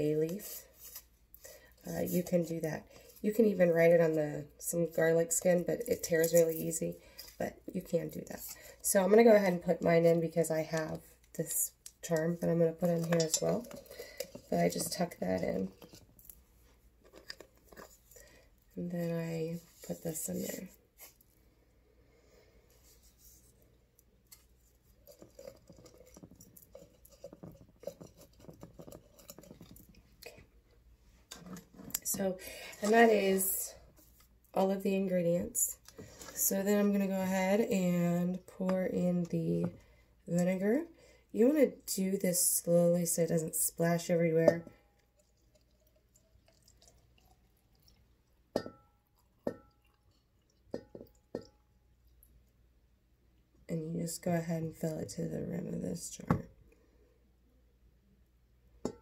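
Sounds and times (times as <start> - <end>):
liquid trickling into glass jar: 45.0 - 48.4.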